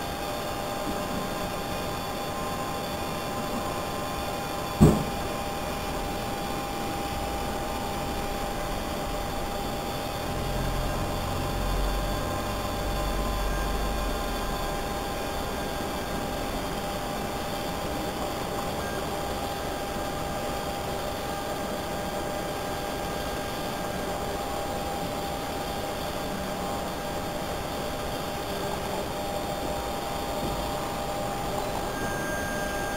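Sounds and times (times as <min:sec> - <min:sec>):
faint high-pitched tone: 0:31.6 - 0:32.9.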